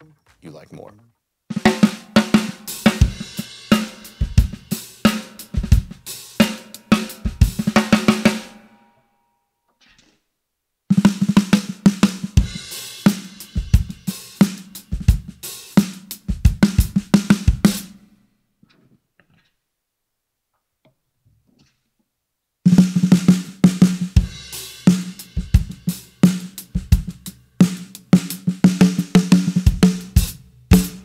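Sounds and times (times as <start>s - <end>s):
drum kit groove: 1.5s - 8.6s, 10.9s - 18.0s, 22.7s - 31.0s.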